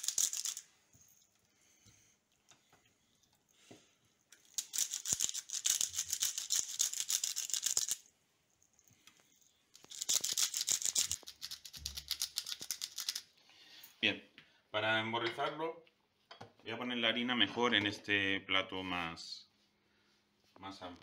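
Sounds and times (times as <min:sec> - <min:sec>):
pepper grinder crunching: 0:00.0 - 0:01.3, 0:04.3 - 0:08.1, 0:09.4 - 0:13.3.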